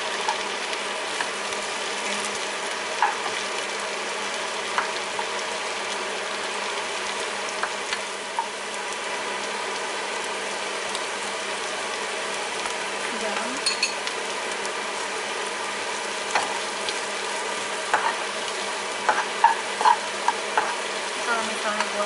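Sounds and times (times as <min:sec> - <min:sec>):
mushrooms sizzling in a frying pan: 0:00.0 - 0:22.0
spatula clicking and scraping: 0:17.9 - 0:18.3, 0:19.0 - 0:20.8.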